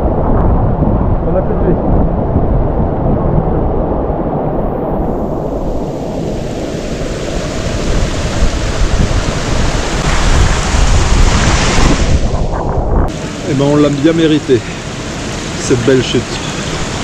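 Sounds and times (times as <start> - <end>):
waterfall roaring: 6.3 - 12.4, 13.1 - 17.0.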